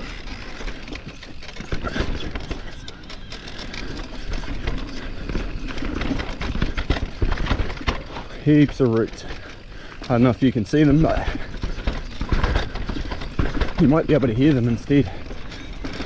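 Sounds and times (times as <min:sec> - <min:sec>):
bike rattling: 0:00.0 - 0:16.0
tyres knocking over roots: 0:03.6 - 0:16.0.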